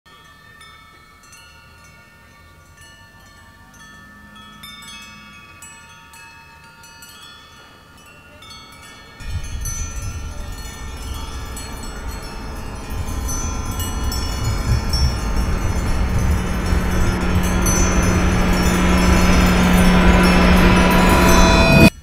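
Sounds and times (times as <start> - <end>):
metal wind chimes ringing: 0.1 - 22.0
low rumbling noise: 9.2 - 22.0.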